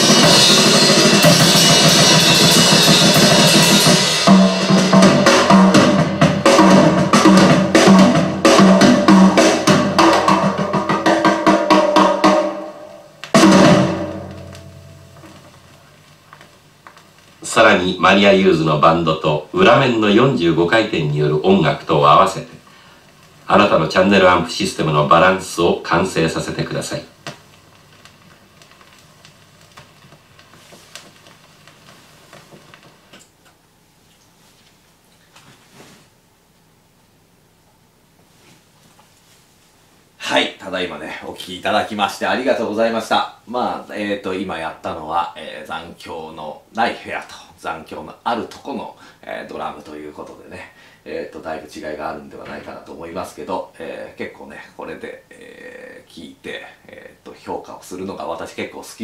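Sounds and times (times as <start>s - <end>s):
loud drum hit ringing: 0.0s - 15.6s
cymbal wash: 0.0s - 16.0s
snare and tom strokes: 0.0s - 16.1s
vinyl record hiss: 0.0s - 59.0s
vinyl clicks and crackle: 2.4s - 18.3s, 23.1s - 35.6s.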